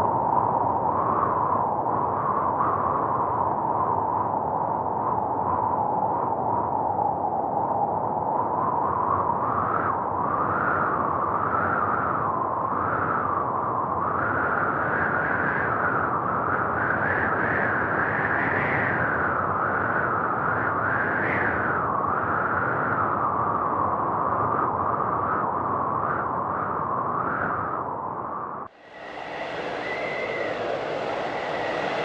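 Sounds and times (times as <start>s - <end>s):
blown air rushing: 28.7s - 32.0s.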